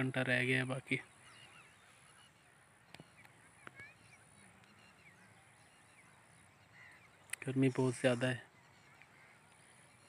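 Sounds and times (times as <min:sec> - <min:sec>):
small birds chirping: 0:00.0 - 0:10.0.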